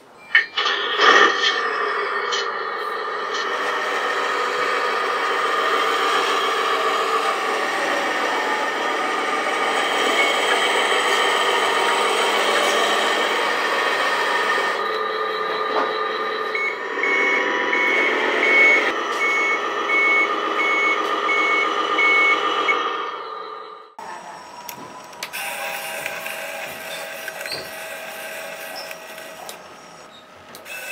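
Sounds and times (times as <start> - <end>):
simulated truck engine running: 0.0 - 30.9
reversing beeper: 0.1 - 26.1.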